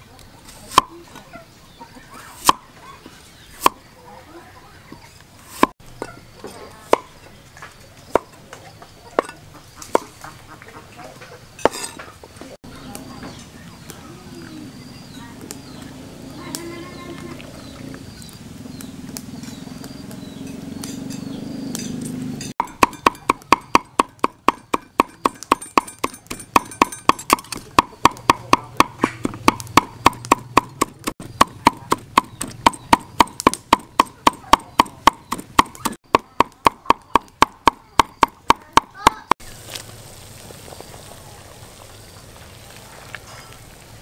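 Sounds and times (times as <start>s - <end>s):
cleaver chopping on wooden board: 2.4s - 2.6s, 5.5s - 5.8s, 9.9s - 10.1s, 22.6s - 39.4s.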